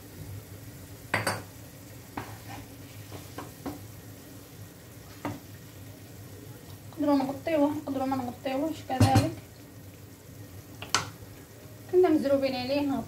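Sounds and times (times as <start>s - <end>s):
oil sizzling: 0.0s - 13.0s
wooden spoon knocking on a pan: 1.1s - 1.5s, 3.1s - 3.9s, 5.2s - 5.5s, 9.0s - 9.4s.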